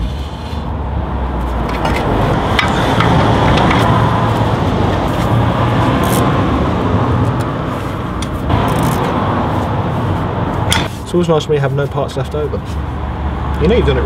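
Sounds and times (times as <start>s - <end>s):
road traffic noise: 0.0s - 14.0s.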